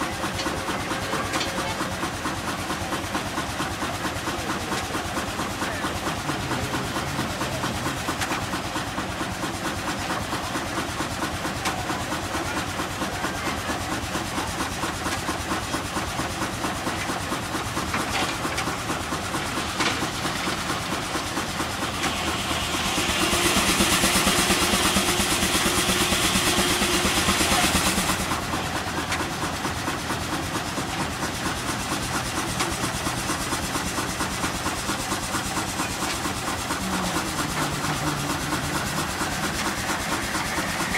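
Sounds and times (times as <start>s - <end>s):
steam engine exhaust chuffing: 0.0s - 40.9s
loud hissing rush: 33.0s - 40.9s.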